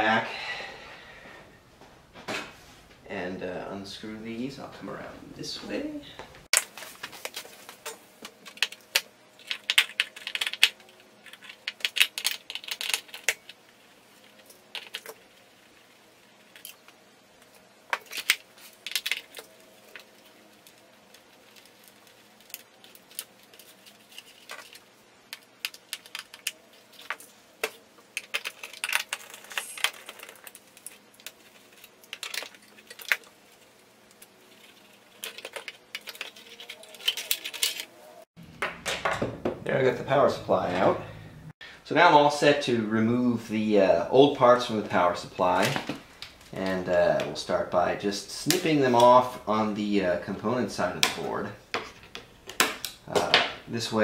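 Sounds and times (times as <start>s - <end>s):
screwdriver and screws rattling: 34.6s - 37.9s.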